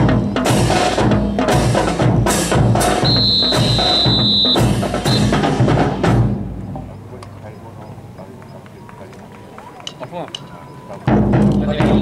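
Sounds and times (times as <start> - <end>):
pulsing low drum beats: 0.0 - 7.2, 11.0 - 12.0.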